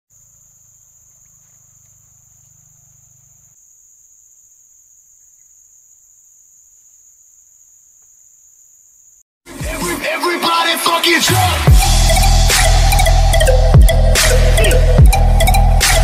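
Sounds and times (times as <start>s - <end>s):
shrill insect chorus: 0.1s - 9.2s.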